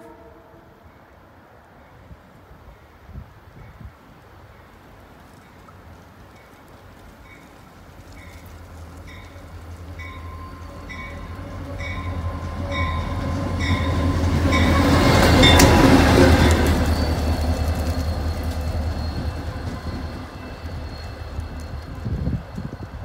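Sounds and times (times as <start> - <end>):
diesel locomotive engine rumble: 6.0 - 23.0
locomotive bell ringing: 9.0 - 23.0.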